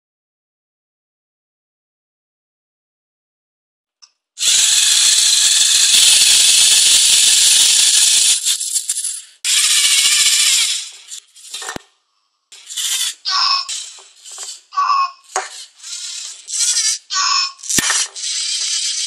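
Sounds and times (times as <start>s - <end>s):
robot motors rattling on wooden table: 4.4s - 11.9s, 12.6s - 19.0s.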